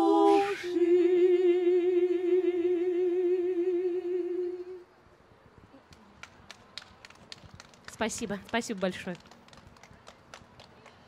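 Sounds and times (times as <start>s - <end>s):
women singing a cappella: 0.0s - 4.8s
hand claps: 5.9s - 11.0s.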